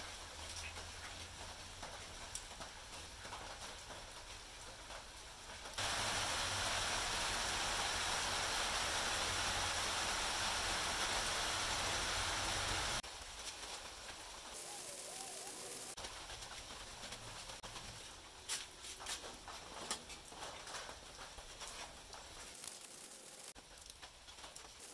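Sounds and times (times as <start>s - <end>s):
steady hiss: 4.2s - 19.6s, 20.7s - 24.9s.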